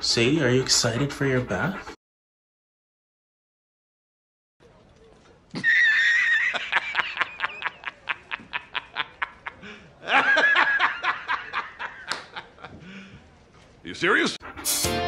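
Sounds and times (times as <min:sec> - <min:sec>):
man laughing heartily: 0:05.6 - 0:12.9.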